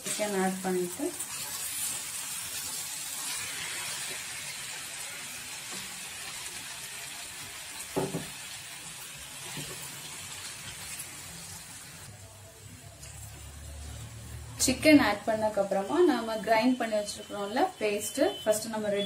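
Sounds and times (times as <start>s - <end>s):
chicken sizzling in a pan: 0.0s - 12.1s.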